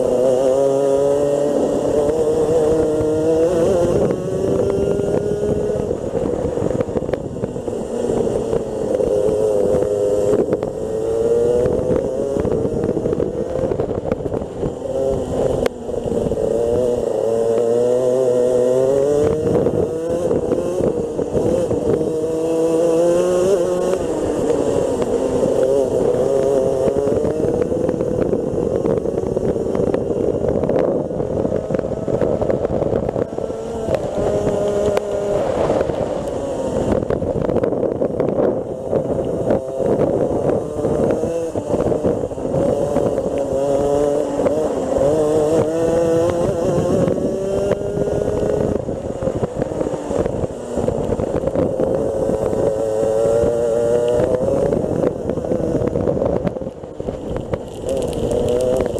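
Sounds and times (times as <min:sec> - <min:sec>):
kart engine revving: 0:00.0 - 0:58.9.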